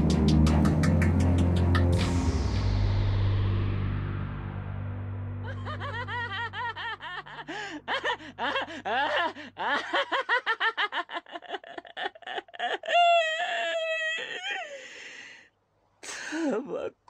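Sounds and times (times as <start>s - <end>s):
low background music: 0.0s - 9.5s
person laughing: 5.4s - 14.8s.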